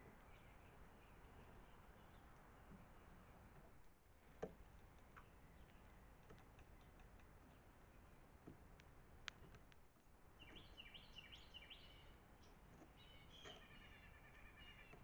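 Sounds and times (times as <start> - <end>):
faint sharp clicks: 3.6 - 7.6, 8.4 - 10.6
songbird singing falling notes: 9.3 - 15.0.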